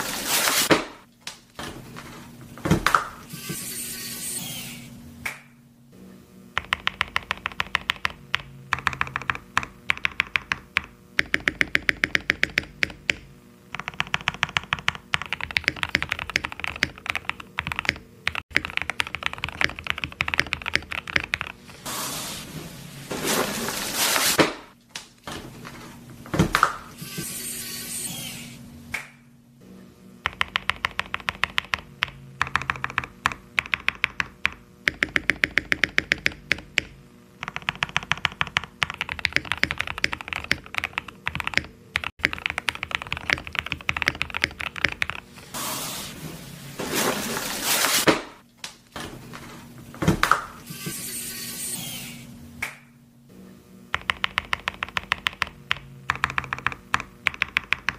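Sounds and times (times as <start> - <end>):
fast typing on mechanical keyboard: 6.6 - 21.6, 30.3 - 45.3, 54.0 - 57.9
box scraping and rustling: 21.9 - 24.4, 45.7 - 48.1.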